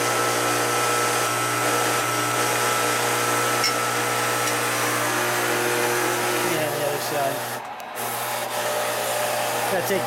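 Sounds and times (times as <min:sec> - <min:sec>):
model train electric motor whir: 0:00.0 - 0:10.0.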